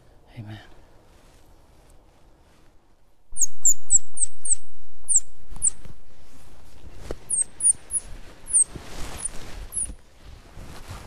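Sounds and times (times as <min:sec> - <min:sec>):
squirrel call chirps: 0:03.4 - 0:05.8, 0:07.3 - 0:10.0.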